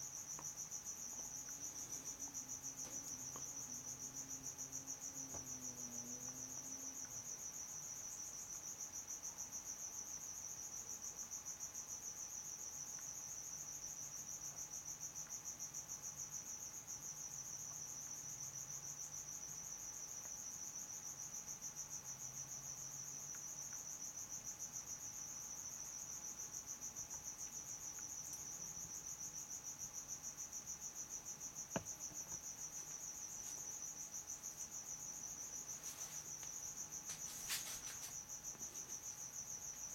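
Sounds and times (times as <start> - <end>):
cricket chirping: 0.0 - 39.9.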